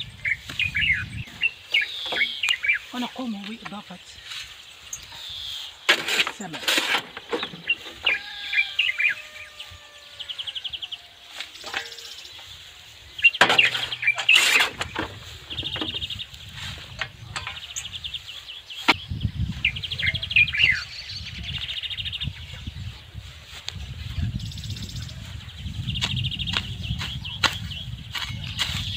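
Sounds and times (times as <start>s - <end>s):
wind rumble on microphone: 0.0s - 1.7s, 14.6s - 28.9s
small birds chirping: 0.0s - 28.9s.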